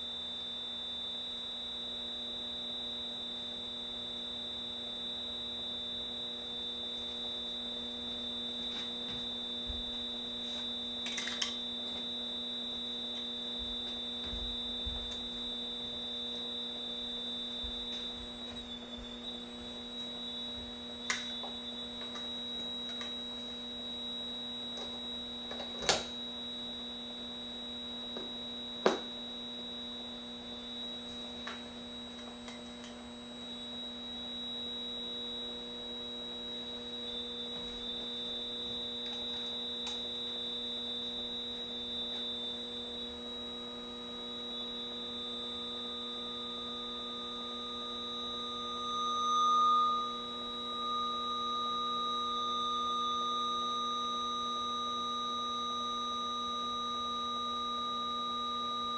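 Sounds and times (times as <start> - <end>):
amplifier hum and whine: 0.0 - 58.9.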